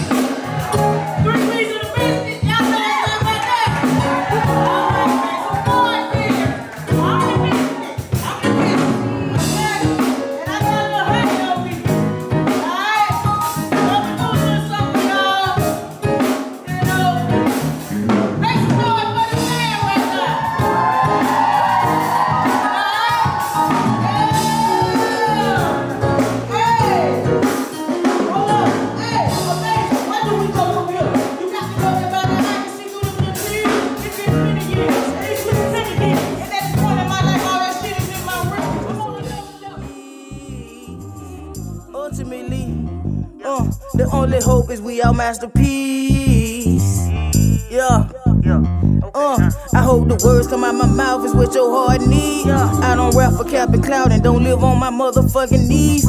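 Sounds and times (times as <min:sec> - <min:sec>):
band playing soul hip-hop groove: 0:00.0 - 0:56.0
person singing long notes: 0:39.7 - 0:56.0.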